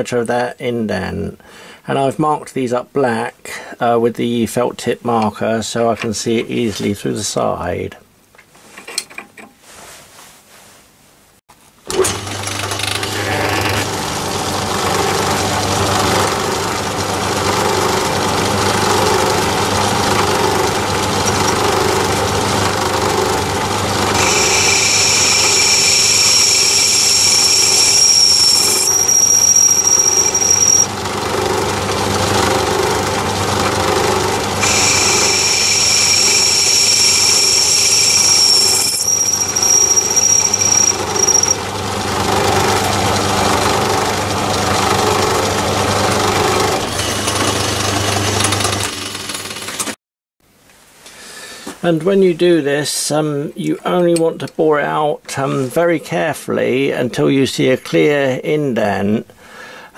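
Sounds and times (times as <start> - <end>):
lathe motor hum: 11.9 - 50.0
high-pitched cutting whine: 13.1 - 43.3.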